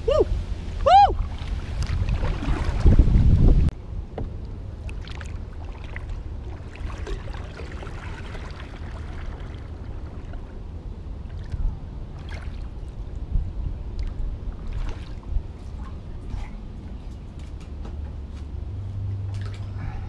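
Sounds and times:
steady low rumble: 0.0s - 20.0s
paddle splashing water: 1.1s - 3.7s, 4.7s - 13.2s, 14.0s - 16.1s.

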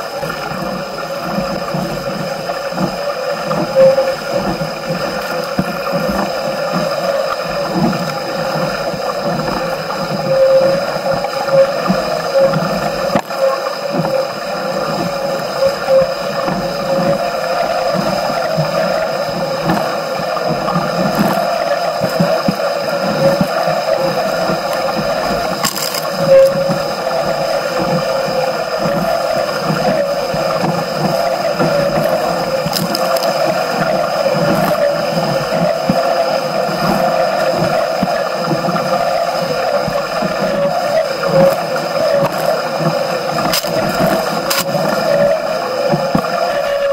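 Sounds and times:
water rushing along a boat hull: 0.0s - 46.9s
water splashes: 0.0s - 46.9s.

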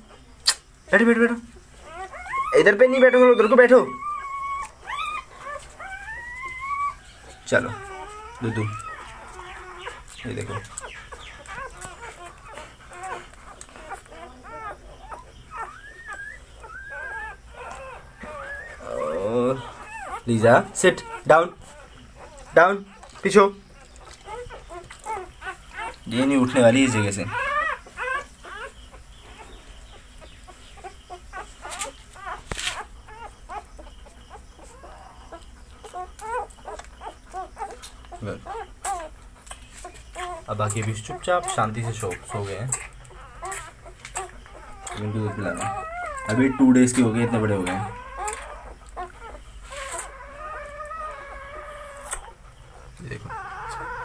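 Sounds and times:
puppies squeaking and whining: 0.0s - 54.0s
rustle of handling: 38.8s - 45.0s, 45.6s - 51.3s.

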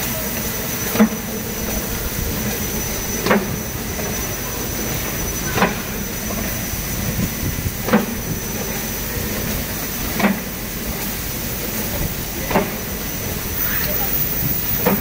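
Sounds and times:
machine hum with high whine: 0.0s - 15.0s
sharp machine knock: 3.0s - 4.2s, 12.4s - 13.0s.

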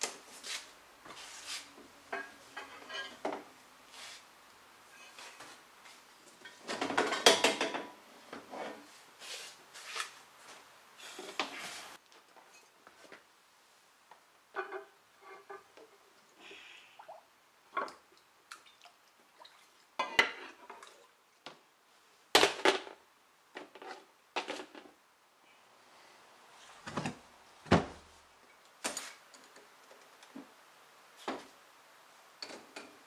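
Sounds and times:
liquid splashes and drips: 17.8s - 20.0s.

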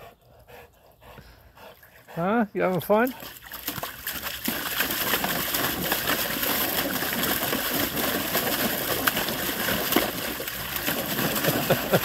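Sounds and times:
dog splashing in water: 2.7s - 12.0s.

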